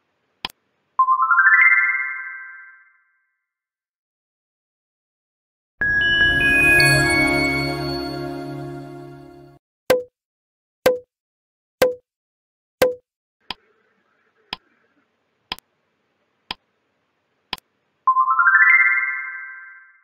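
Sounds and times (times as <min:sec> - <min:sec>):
rising chime notes: 0:05.8 - 0:09.6.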